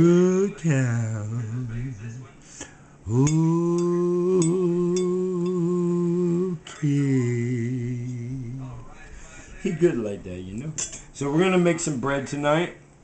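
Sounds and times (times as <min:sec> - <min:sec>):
man singing unaccompanied: 0:00.0 - 0:02.4, 0:03.0 - 0:10.5.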